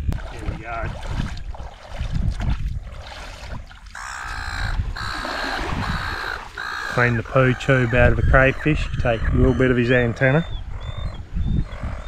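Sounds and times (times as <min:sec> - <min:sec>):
bird cawing: 0:03.9 - 0:12.0.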